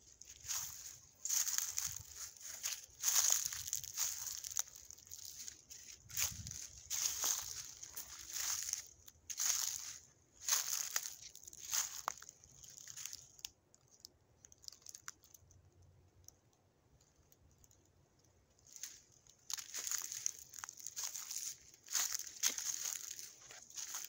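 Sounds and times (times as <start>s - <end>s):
footsteps crunching through dry leaves: 0.0s - 13.4s, 18.7s - 24.0s.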